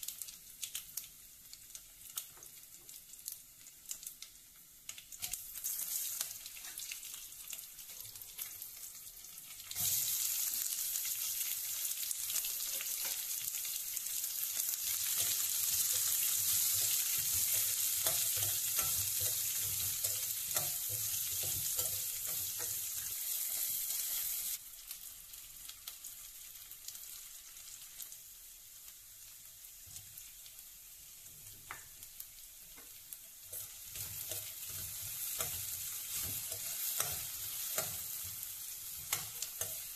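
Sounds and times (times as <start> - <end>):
onions sizzling in hot oil: 0.0 - 39.9
metal spoon clinking and scraping pan: 15.0 - 24.2, 33.5 - 39.9.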